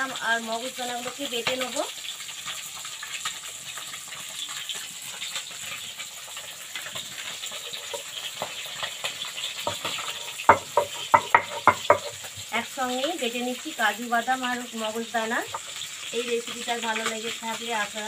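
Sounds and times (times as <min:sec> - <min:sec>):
fish sizzling in hot oil: 0:00.0 - 0:18.0
sharp stone knocks: 0:10.5 - 0:12.1.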